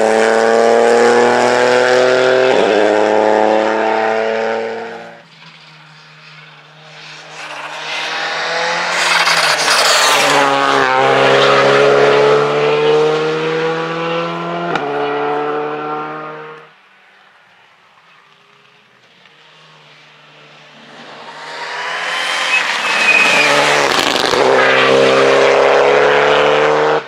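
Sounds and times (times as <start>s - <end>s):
high-revving rally car engine: 0.0s - 16.7s, 19.5s - 27.0s
rally car engine passing: 0.0s - 16.7s, 19.3s - 27.0s.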